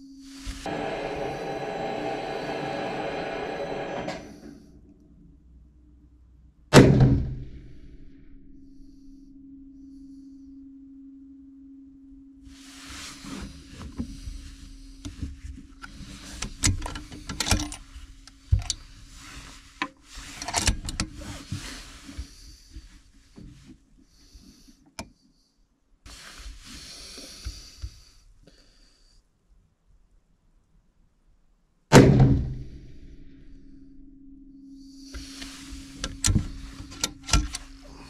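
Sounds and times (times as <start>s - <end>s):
steady low hum: 0.0s - 24.9s, 32.0s - 38.0s
rifle handling clicks and knocks: 15.8s - 17.9s.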